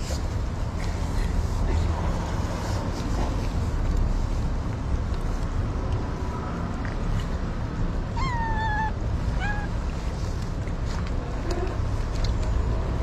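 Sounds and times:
cat meowing: 8.1s - 9.8s.

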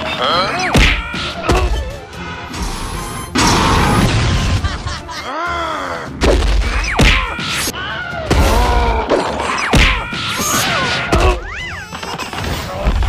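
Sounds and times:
cartoon character cries: 5.1s - 6.1s
cartoon whacks and crashes: 6.2s - 7.7s.

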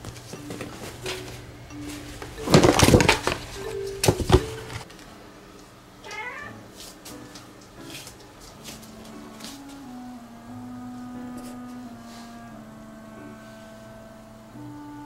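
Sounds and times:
soft background music: 0.0s - 4.9s, 6.0s - 15.0s
paper bag crinkling: 1.9s - 4.9s
cat meowing: 6.0s - 6.6s.

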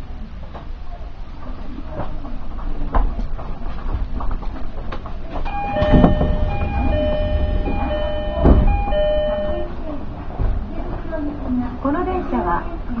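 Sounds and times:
train wheels clicking on rail joints: 3.2s - 9.6s
electronic chime: 5.5s - 9.7s
heavy thumps: 5.6s - 9.6s.

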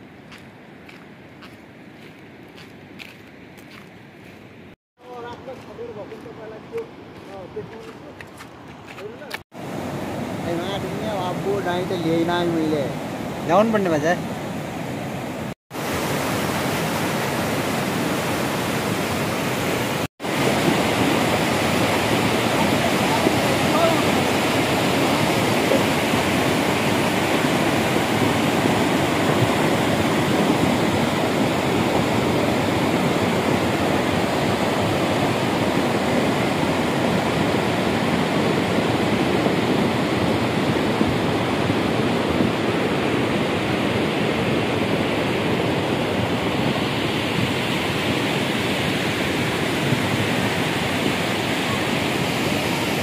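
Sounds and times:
river rushing over rocks: 9.6s - 53.0s.

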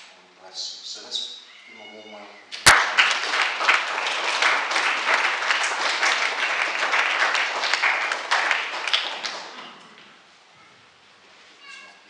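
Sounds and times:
congregation applauding: 2.6s - 10.2s.

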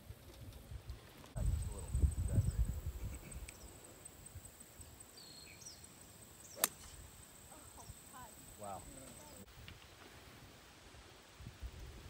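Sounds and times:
golf club striking ball: 6.5s - 7.0s.

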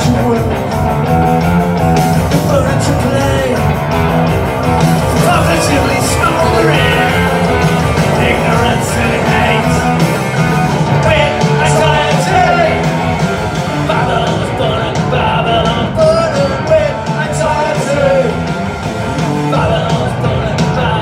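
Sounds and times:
live rock band playing: 0.0s - 21.0s
person singing: 4.6s - 18.5s, 19.4s - 21.0s.

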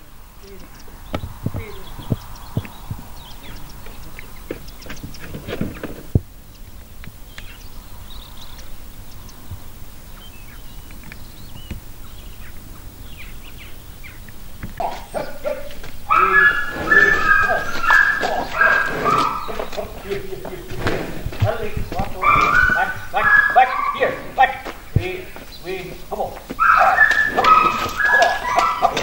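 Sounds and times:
small birds chirping: 0.0s - 29.0s
dog barking loudly: 14.8s - 20.7s, 21.4s - 24.9s, 26.5s - 29.0s.

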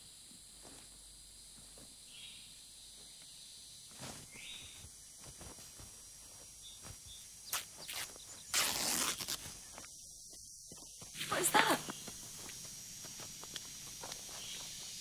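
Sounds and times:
cloth tearing: 7.5s - 9.5s.

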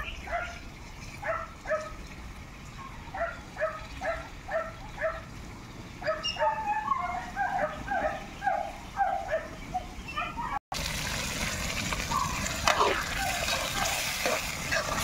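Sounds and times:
dog yelping: 6.0s - 10.6s.

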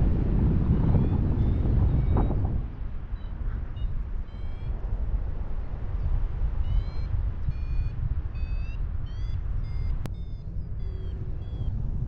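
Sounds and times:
wind rumble on microphone: 0.0s - 12.0s
variometer short beeps: 3.8s - 4.8s, 6.6s - 11.8s.

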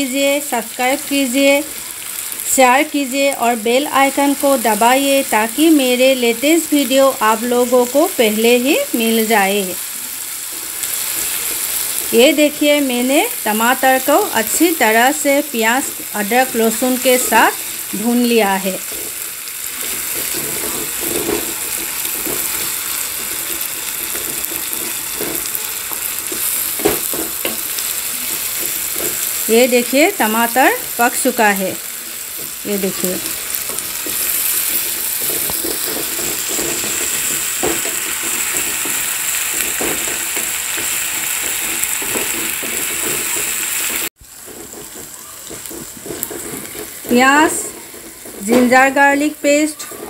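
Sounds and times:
vegetables sizzling in oil: 0.0s - 50.0s
wooden spatula scraping pan: 15.7s - 50.0s.

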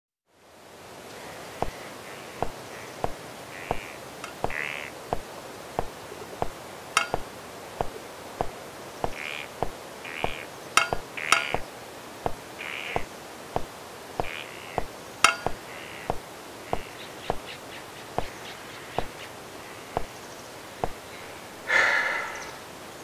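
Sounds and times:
steady hiss: 0.3s - 23.0s
footsteps on wooden bridge: 1.6s - 17.5s, 18.2s - 18.4s, 19.0s - 19.2s, 20.8s - 21.0s.

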